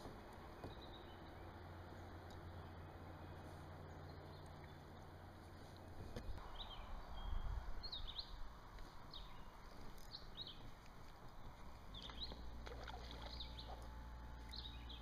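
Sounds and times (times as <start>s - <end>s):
small birds chirping: 0.6s - 15.0s.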